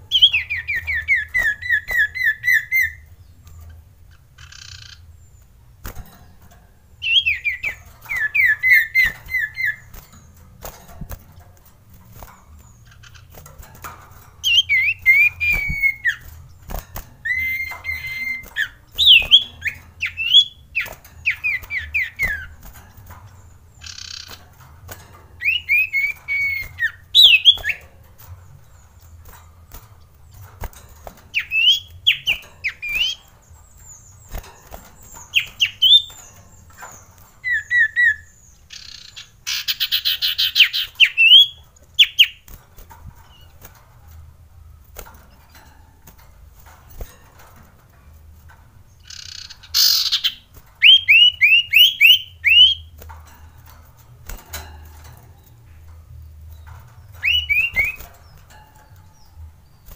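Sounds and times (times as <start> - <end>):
bird rattling chatter: 0.0 - 59.9
bird whistling song: 0.1 - 3.6, 4.4 - 5.4, 7.0 - 10.1, 14.4 - 22.6, 23.8 - 24.4, 25.4 - 27.8, 31.3 - 42.5, 49.0 - 52.9, 57.0 - 58.4.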